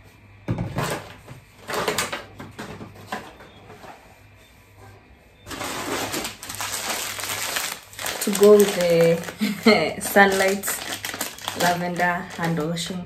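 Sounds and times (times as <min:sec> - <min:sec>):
plastic packet crinkling: 0:05.5 - 0:13.0.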